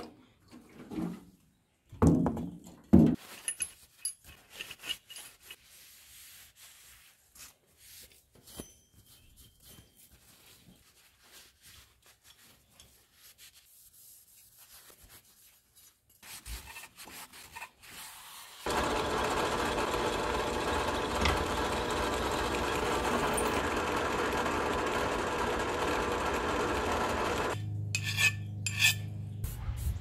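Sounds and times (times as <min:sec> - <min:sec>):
drill press drilling steel: 0:18.7 - 0:27.6
rag rubbing metal part: 0:27.9 - 0:29.1.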